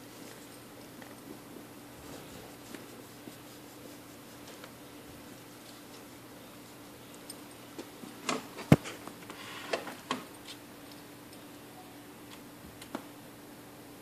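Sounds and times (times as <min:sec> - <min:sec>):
animals play-wrestling on carpet: 0:00.0 - 0:08.2
faint steady hum: 0:00.0 - 0:14.0.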